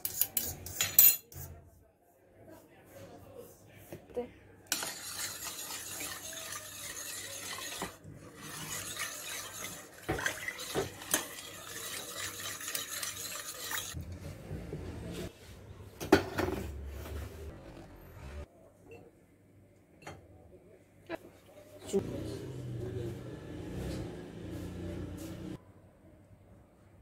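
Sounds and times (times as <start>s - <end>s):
metal spoon scraping batter in bowl: 0.0s - 1.6s, 4.7s - 14.0s.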